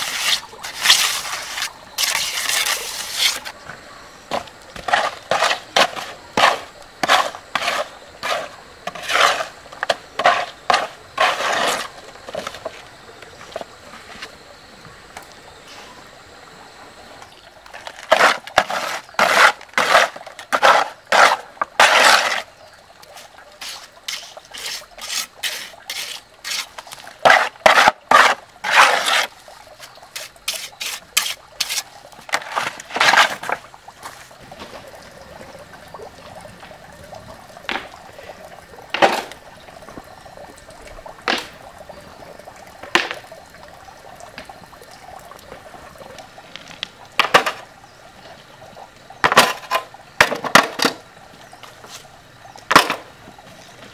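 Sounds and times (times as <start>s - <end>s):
trowel scraping wet cement: 0.0s - 3.6s, 4.3s - 12.7s, 17.8s - 22.5s, 23.1s - 33.6s.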